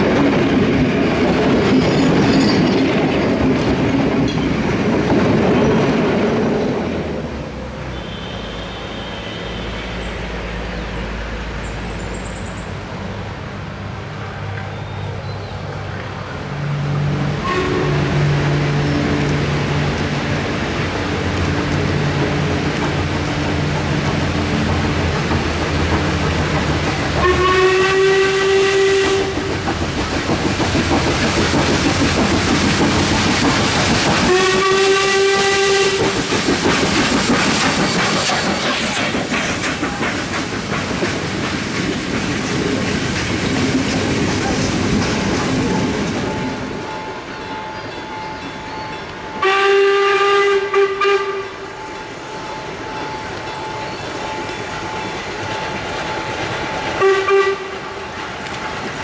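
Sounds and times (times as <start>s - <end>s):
train clattering over rail joints: 0.0s - 7.9s, 15.8s - 49.9s, 50.7s - 59.0s
steam whistle: 7.9s - 10.0s, 17.4s - 18.3s, 27.2s - 29.4s, 34.2s - 36.2s, 49.4s - 51.6s, 57.0s - 57.8s.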